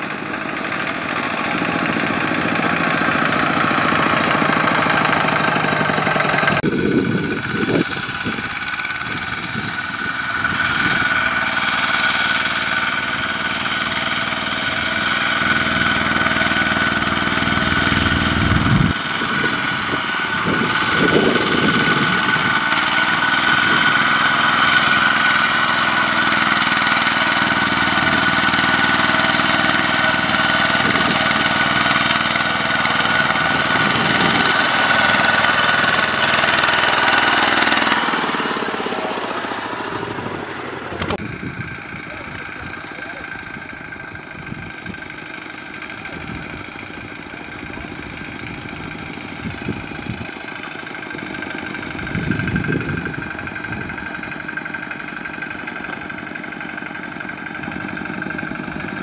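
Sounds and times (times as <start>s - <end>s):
diesel engine running under load: 0.0s - 59.0s.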